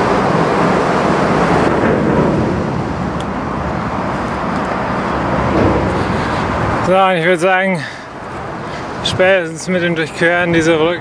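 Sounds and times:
motorway traffic noise: 0.0s - 11.0s.

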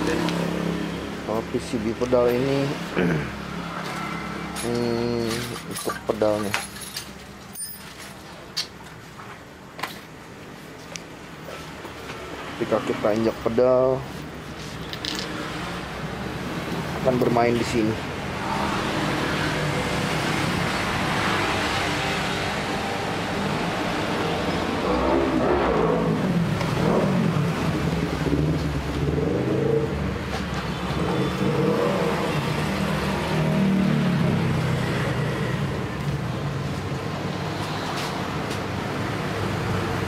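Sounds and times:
engines revving and passing: 0.0s - 5.7s, 15.1s - 40.0s
steady traffic engine hum: 0.0s - 40.0s.

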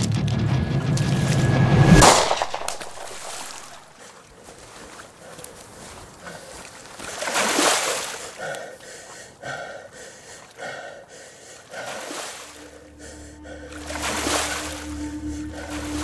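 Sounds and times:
loud gasping breath: 8.0s - 14.0s
breathing inside a gas mask: 8.2s - 16.0s.

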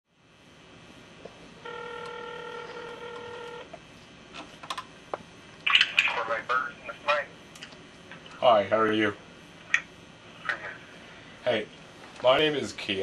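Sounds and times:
telephone ringback tone: 1.6s - 3.7s.

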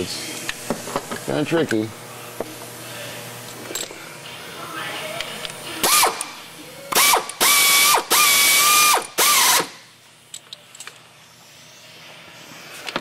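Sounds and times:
power ratchet whining: 5.8s - 9.9s.

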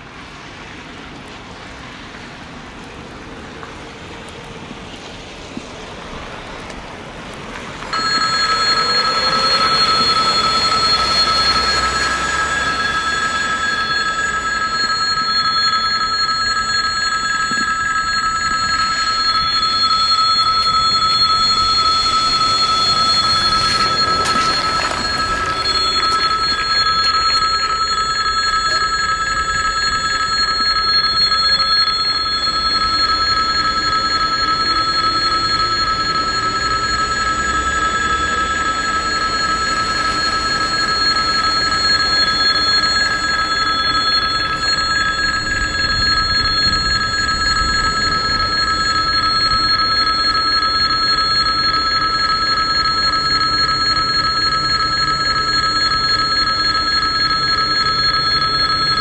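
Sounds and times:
level-crossing warning bell ringing: 7.6s - 59.0s.

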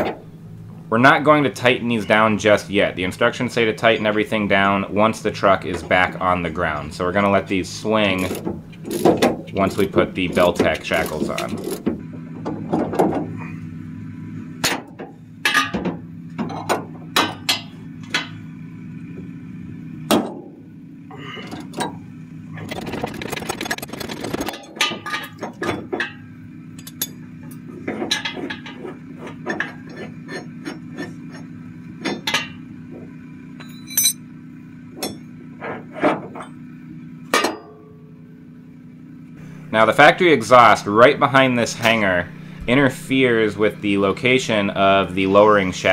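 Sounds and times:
steady low hum: 0.0s - 45.9s
metal tools clinking and knocking: 26.8s - 27.2s, 33.6s - 34.2s.

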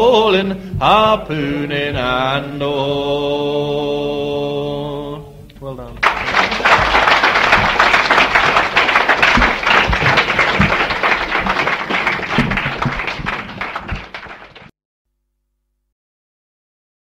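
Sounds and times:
audience applauding: 6.0s - 14.7s.

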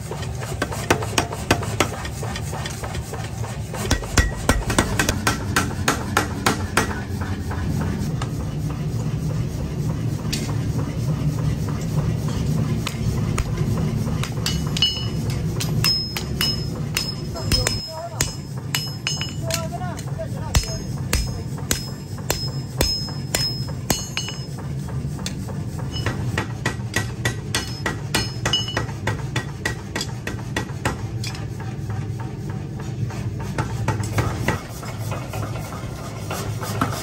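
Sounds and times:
steady low hum: 0.0s - 37.0s
hammer striking metal on anvil: 3.8s - 7.3s, 12.2s - 32.0s.

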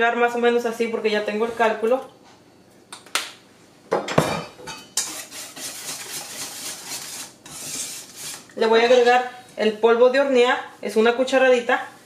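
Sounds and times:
whisk stirring in metal bowl: 4.7s - 9.2s.

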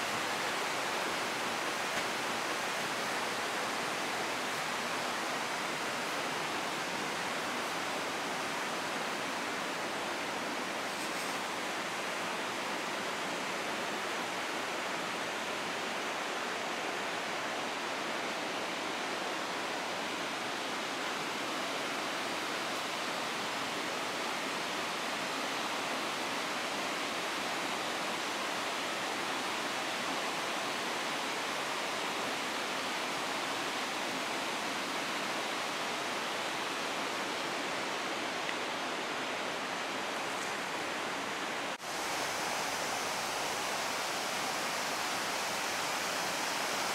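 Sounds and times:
river rushing: 0.0s - 46.9s.

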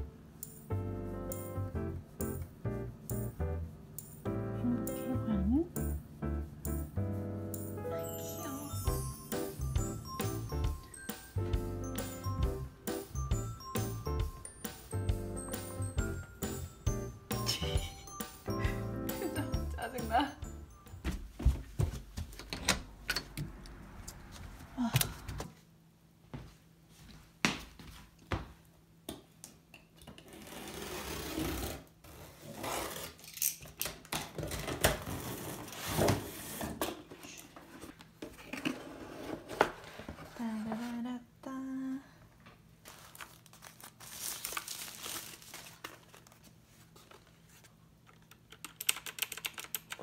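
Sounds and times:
plastic wrapping crinkling: 42.8s - 47.7s.

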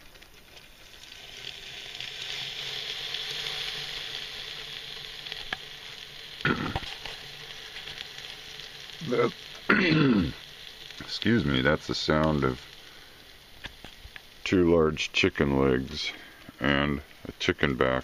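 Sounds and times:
chicken sizzling: 0.0s - 18.0s
person's voice: 9.0s - 10.4s, 11.0s - 12.6s, 14.4s - 18.0s.

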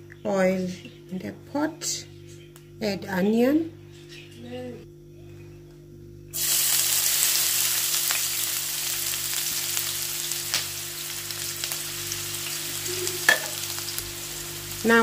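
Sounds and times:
onion sizzling in hot oil: 6.4s - 15.0s.

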